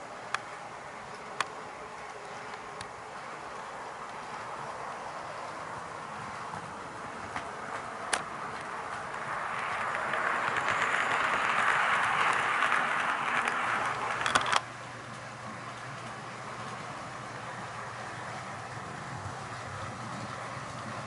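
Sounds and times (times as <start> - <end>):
model train wheels and motor rolling: 0.0 - 21.0
wheels clicking over rail joints: 1.0 - 17.4.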